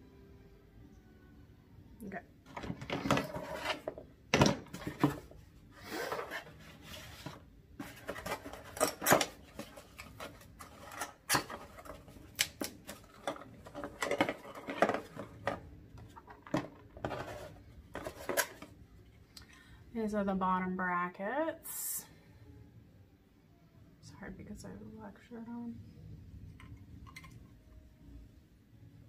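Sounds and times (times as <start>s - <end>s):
plastic parts clattering and clicking: 2.5s - 5.3s, 7.2s - 18.7s
cardboard packaging rustling: 4.6s - 18.7s.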